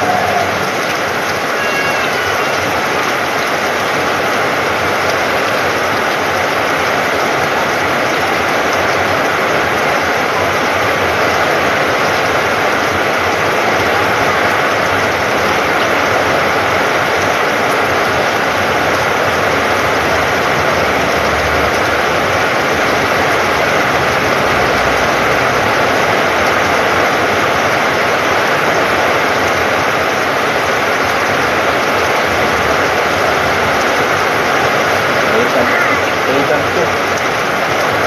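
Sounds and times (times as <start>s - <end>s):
heavy rain on corrugated roof: 0.0s - 38.0s.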